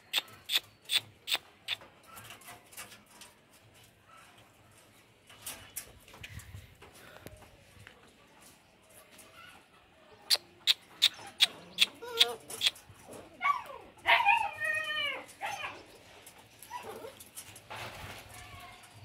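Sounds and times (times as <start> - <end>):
puppies yipping: 10.3 - 15.9
puppies whining and whimpering: 11.1 - 15.8, 16.6 - 17.2.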